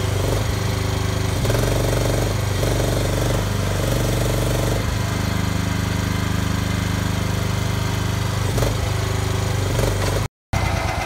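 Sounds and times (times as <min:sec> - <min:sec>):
mini excavator engine running: 0:00.0 - 0:11.0.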